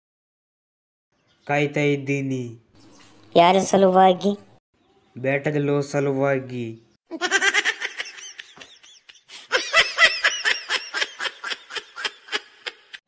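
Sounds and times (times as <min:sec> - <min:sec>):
person laughing: 0:07.1 - 0:13.0.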